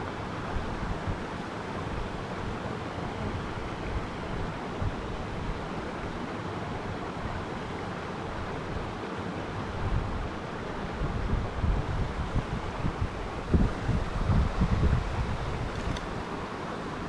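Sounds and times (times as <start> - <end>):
wind buffeting microphone: 10.9 - 16.3.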